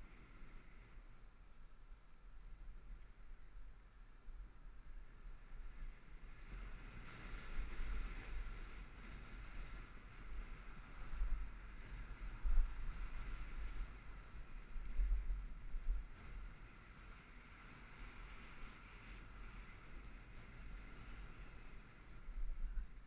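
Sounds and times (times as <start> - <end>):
wind buffeting microphone: 5.7 - 23.0.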